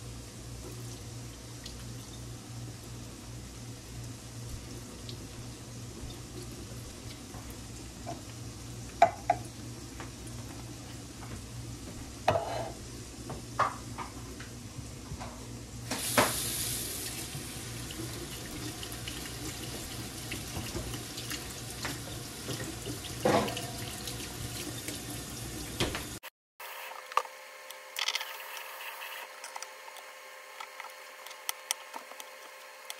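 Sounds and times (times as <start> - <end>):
faucet running into sink: 16.1 - 26.1.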